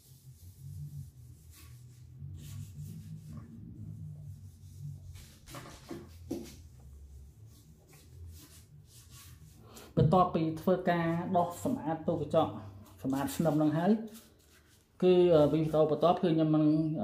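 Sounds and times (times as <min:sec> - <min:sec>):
sponge scrubbing glass: 0:00.0 - 0:09.6
faint low hum: 0:00.0 - 0:17.0.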